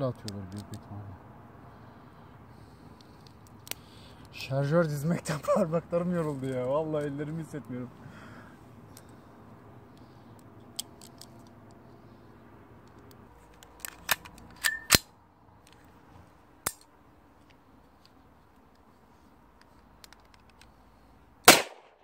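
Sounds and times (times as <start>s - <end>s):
pistol metallic clicks and clacks: 10.4s - 11.8s, 12.8s - 15.9s, 16.6s - 17.6s, 19.6s - 20.8s.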